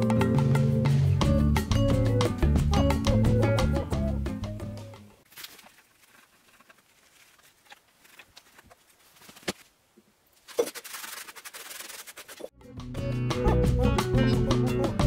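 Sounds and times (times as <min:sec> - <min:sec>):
background music: 0:00.0 - 0:05.2, 0:12.6 - 0:15.0
rustling scraping rub: 0:05.2 - 0:12.5.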